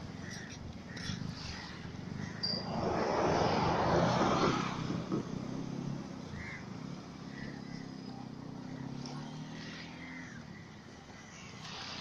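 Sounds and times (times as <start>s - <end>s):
engine running low hum: 0.0s - 12.0s
rush of noise: 2.2s - 5.2s.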